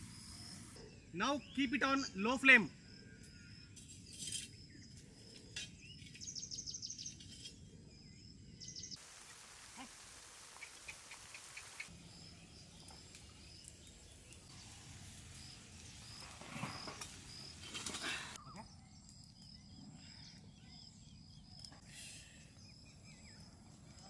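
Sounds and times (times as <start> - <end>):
rushing hiss: 9.0 - 11.9.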